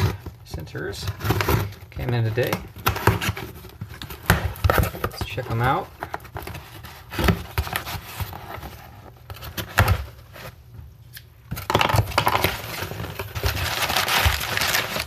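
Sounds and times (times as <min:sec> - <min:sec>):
packing paper crinkling: 0:12.2 - 0:15.0.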